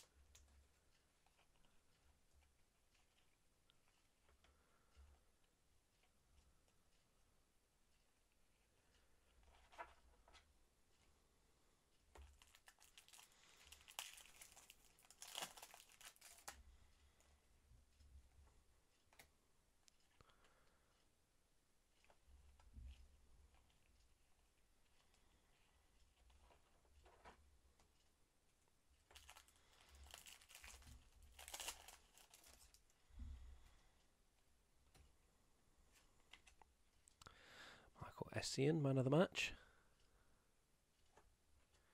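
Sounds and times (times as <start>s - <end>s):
foil wrapper crinkling and tearing: 12.4s - 16.6s, 29.1s - 32.8s.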